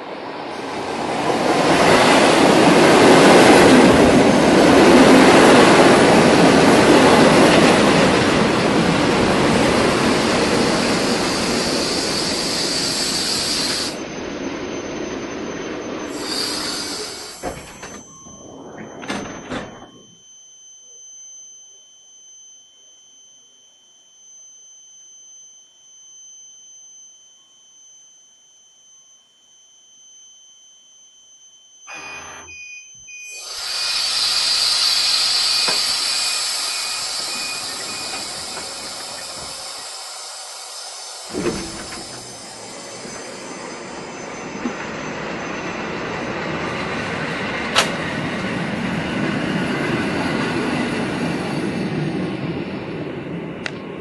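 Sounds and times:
high-pitched train whine: 0:00.0 - 0:54.0
train wheels rumbling: 0:00.2 - 0:19.8, 0:33.7 - 0:53.3
brake and wheel squeals: 0:00.6 - 0:20.3, 0:31.9 - 0:52.1.

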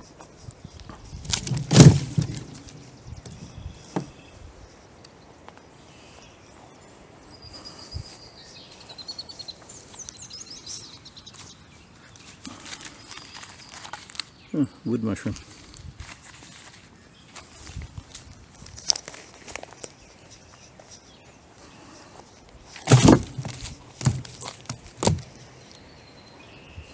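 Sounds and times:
small birds chirping: 0:00.0 - 0:26.9.

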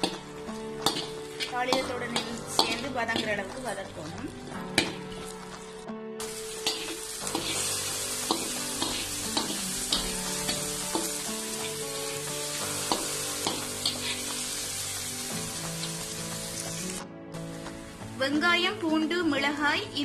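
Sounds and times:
vegetables sizzling in oil: 0:00.0 - 0:20.0
metal spatula scraping pan: 0:06.6 - 0:11.8.

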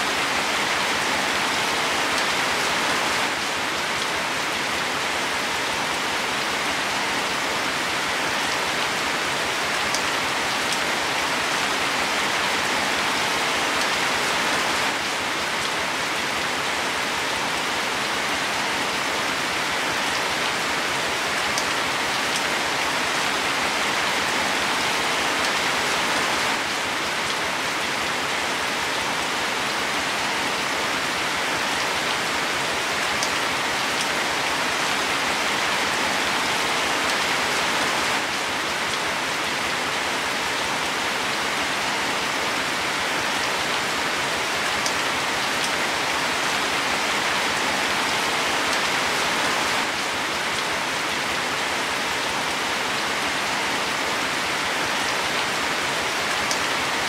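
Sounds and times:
rain falling on leaves: 0:00.0 - 0:57.0.

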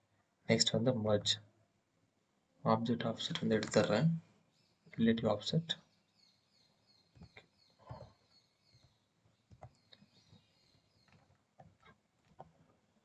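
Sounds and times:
computer mouse clicks: 0:03.2 - 0:04.0.

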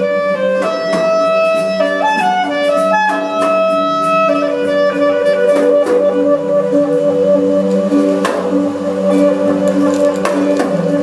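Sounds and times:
slow instrumental music: 0:00.0 - 0:11.0.

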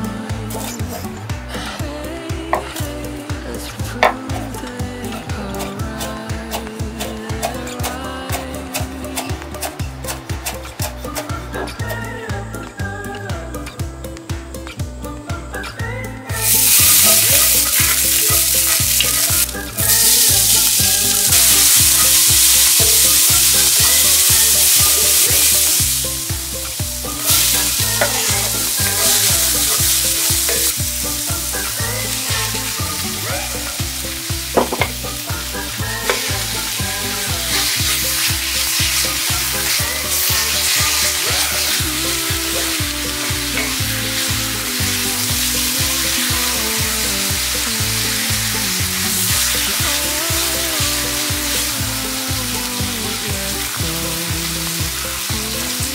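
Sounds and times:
background music with steady beat: 0:00.0 - 0:55.9
food sizzling in oil: 0:16.3 - 0:55.9.

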